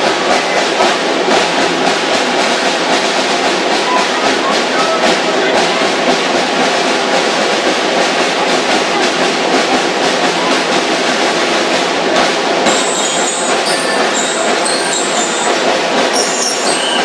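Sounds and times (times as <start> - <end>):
snare drums: 0.0 - 17.0
bell lyre ringing: 12.7 - 17.0.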